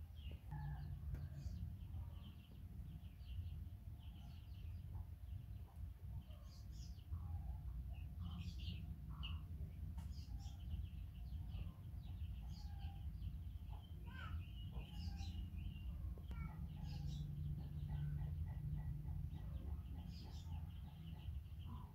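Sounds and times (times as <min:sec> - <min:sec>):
small birds chirping: 0:00.0 - 0:21.9.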